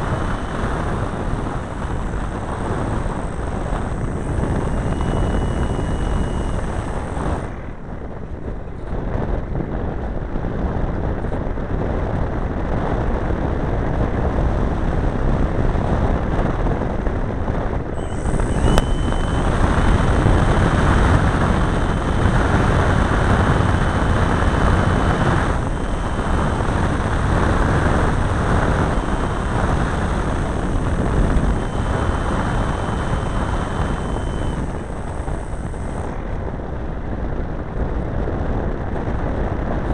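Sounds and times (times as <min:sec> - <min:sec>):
airflow rushing over microphone: 0:00.0 - 0:07.7, 0:18.0 - 0:36.5
model airplane engine: 0:00.0 - 0:39.9
sharp click: 0:18.0 - 0:36.2.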